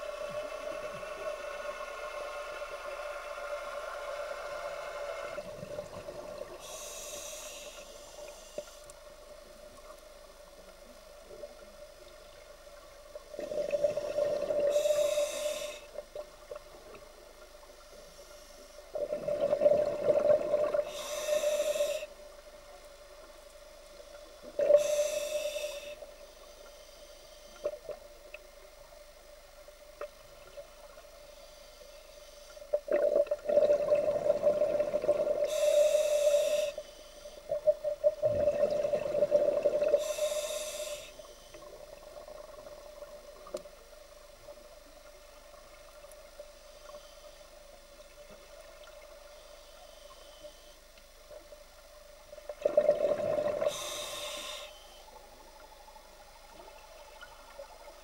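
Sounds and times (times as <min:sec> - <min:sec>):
steady hum: 0:00.0 - 0:58.0
diver breathing through regulator: 0:06.6 - 0:08.9, 0:13.8 - 0:16.0, 0:19.7 - 0:22.2, 0:24.6 - 0:27.6, 0:34.5 - 0:37.5, 0:38.9 - 0:41.5, 0:52.6 - 0:55.6
exhaled bubbles gurgling: 0:13.2 - 0:15.4, 0:19.0 - 0:21.2, 0:32.8 - 0:35.7, 0:37.5 - 0:40.2, 0:52.4 - 0:54.1.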